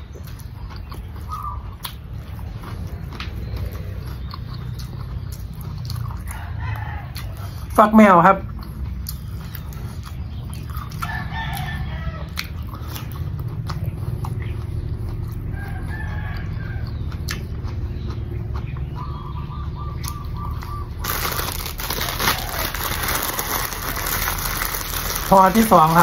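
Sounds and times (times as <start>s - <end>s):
chewing raw cucumber: 0.0s - 7.8s, 8.4s - 26.0s
rooster crowing: 6.3s - 7.6s, 11.0s - 12.4s, 15.5s - 17.0s, 21.0s - 24.7s
plastic bag rustling: 21.0s - 26.0s.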